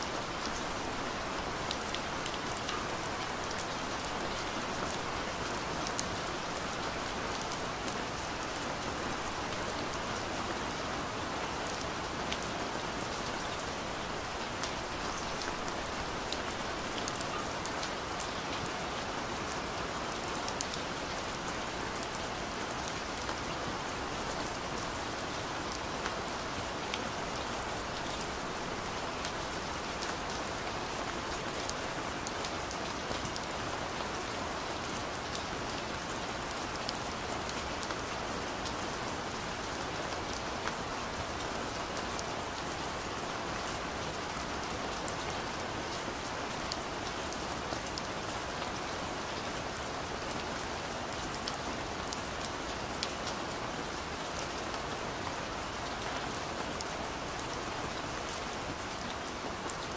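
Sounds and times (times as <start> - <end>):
steady rain hiss: 0.0 - 59.9
raindrops ticking nearby: 11.4 - 23.4.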